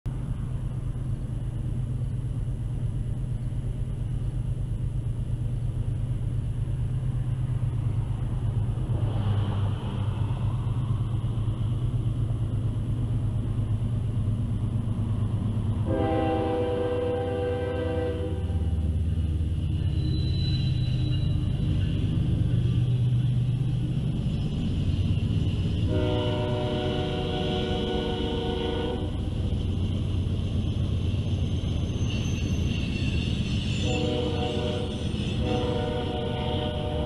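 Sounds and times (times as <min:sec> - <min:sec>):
diesel locomotive rumble: 0:00.0 - 0:37.0
locomotive air horn: 0:15.8 - 0:18.8, 0:25.8 - 0:29.4, 0:33.8 - 0:37.0.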